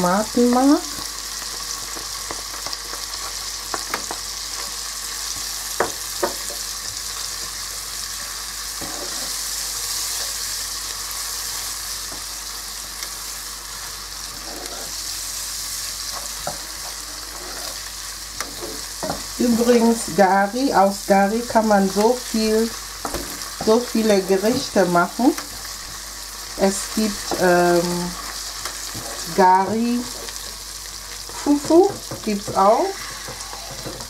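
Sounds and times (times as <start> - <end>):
food sizzling in oil: 0.0 - 34.0
wooden spatula knocking and scraping: 31.3 - 34.0.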